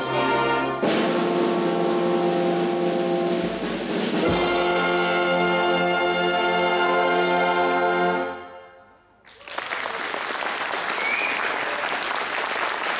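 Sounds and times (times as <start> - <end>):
brass band sustained chord: 0.0 - 8.9
audience applause: 9.2 - 12.9.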